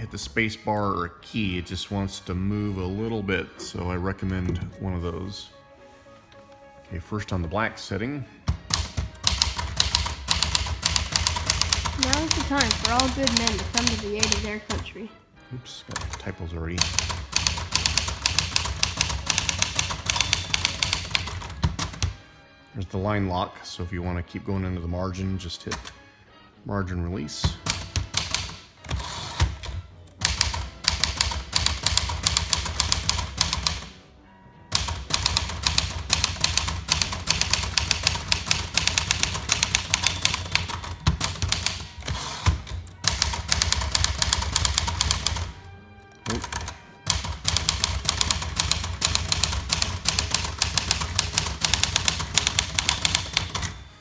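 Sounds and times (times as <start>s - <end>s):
manual typewriter typing: 8.6s - 14.9s, 15.9s - 22.2s, 27.6s - 34.0s, 34.7s - 45.6s, 46.2s - 53.8s.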